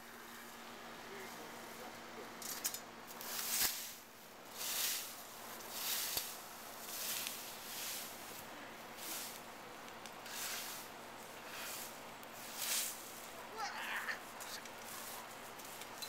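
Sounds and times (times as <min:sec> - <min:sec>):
rake swishing through dry leaves: 0:02.5 - 0:16.0.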